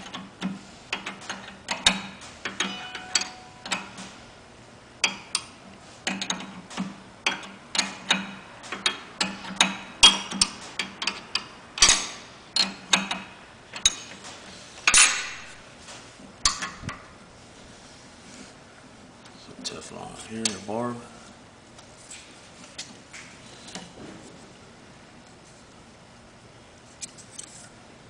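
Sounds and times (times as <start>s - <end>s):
metal clanks: 1.0s - 4.2s, 6.1s - 15.6s.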